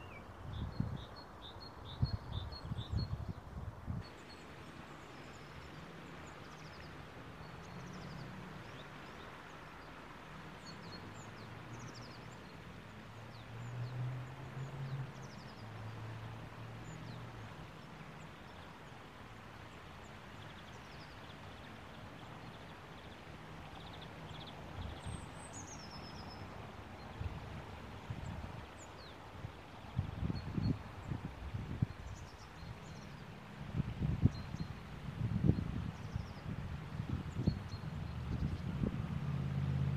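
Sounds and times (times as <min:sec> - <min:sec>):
small birds chirping: 0:00.0 - 0:03.4, 0:10.6 - 0:13.7, 0:20.3 - 0:27.3
wind rumble on microphone: 0:00.0 - 0:04.2, 0:27.0 - 0:39.9.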